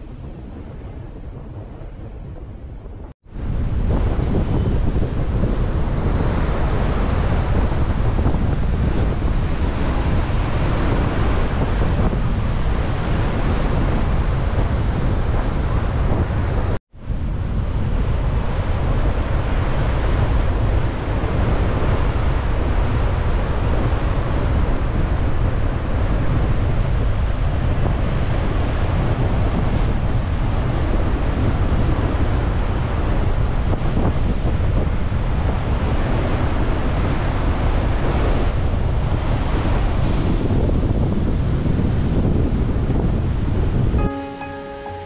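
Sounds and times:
wind buffeting microphone: 0.0 - 44.0
sea surf roaring: 3.4 - 16.8.

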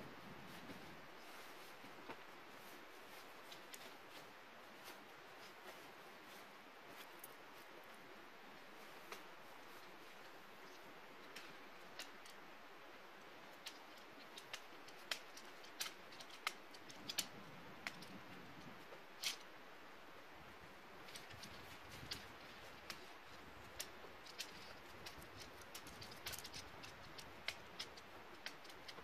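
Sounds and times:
clicks of gear being handled: 13.5 - 18.2, 21.1 - 29.0.

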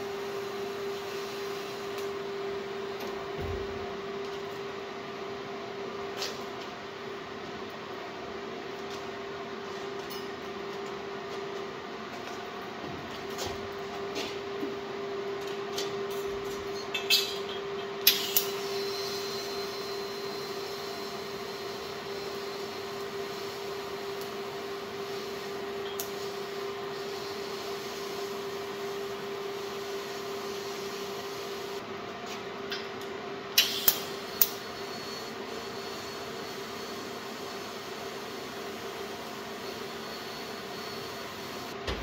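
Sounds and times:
welding arc hissing: 18.1 - 31.8.

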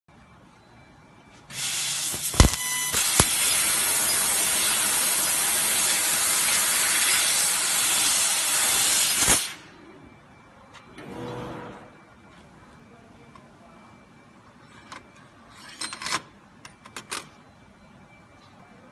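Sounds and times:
sharp cracks: 2.1 - 3.6.

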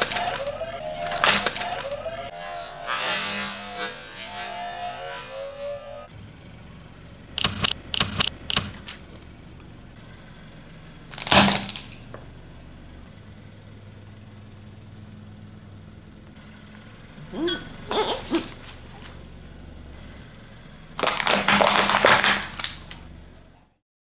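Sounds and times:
car engine idling: 0.0 - 2.4, 4.4 - 23.8
tyre crushing objects with cracks: 11.1 - 12.1, 21.0 - 23.0.

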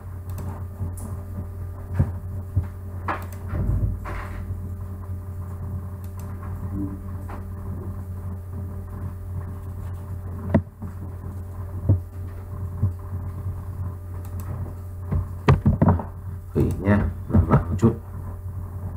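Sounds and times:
low electrical hum: 0.0 - 18.9
computer mouse clicks: 0.3 - 0.5, 3.2 - 3.5, 6.0 - 6.3, 14.2 - 14.5.

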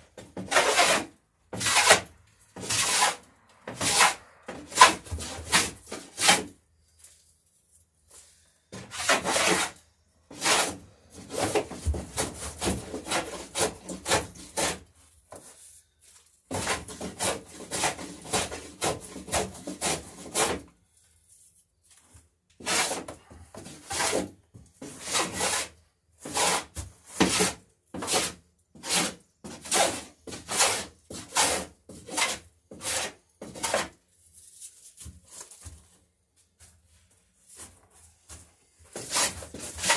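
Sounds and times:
hand plane shaving wood: 0.2 - 6.6, 8.7 - 15.5, 16.5 - 20.7, 22.6 - 34.0, 38.9 - 39.9.

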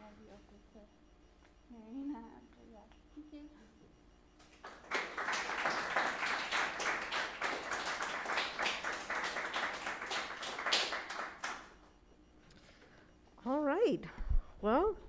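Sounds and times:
audience applauding: 4.6 - 11.7.

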